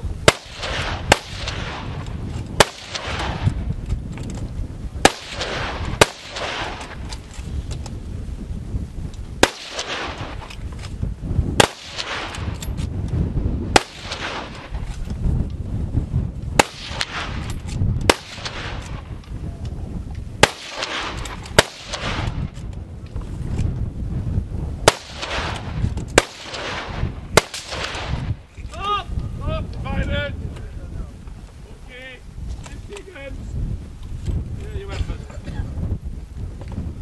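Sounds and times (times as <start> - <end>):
rifle shots with echo: 0.2 - 3.7, 5.0 - 7.2, 9.4 - 10.6, 11.6 - 12.8, 13.7 - 14.8, 16.6 - 19.2, 20.4 - 22.6, 24.8 - 28.4.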